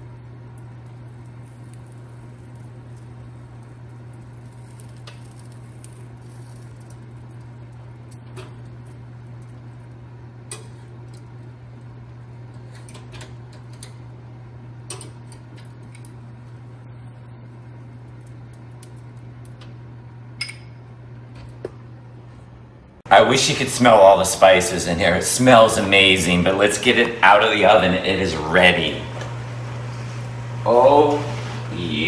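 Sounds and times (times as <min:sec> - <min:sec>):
oven fan humming: 0:00.0 - 0:32.0.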